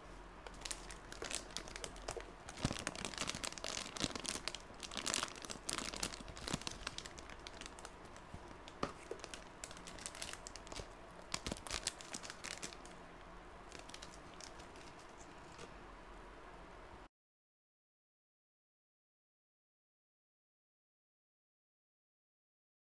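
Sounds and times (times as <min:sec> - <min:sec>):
plastic bags crinkling: 0:00.5 - 0:13.0, 0:13.7 - 0:15.7.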